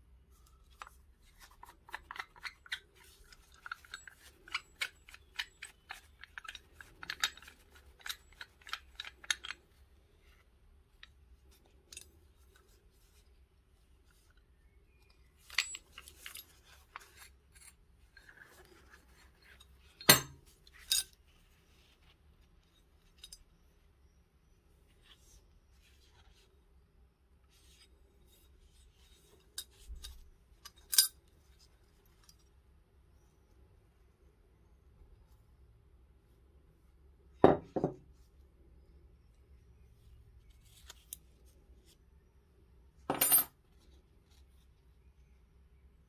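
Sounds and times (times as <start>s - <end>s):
metal clicks and scrapes of knife: 0.8s - 9.7s.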